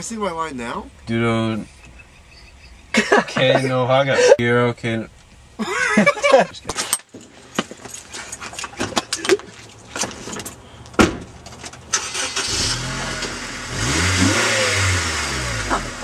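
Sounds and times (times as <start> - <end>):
car engine starting and revving: 11.9 - 16.0.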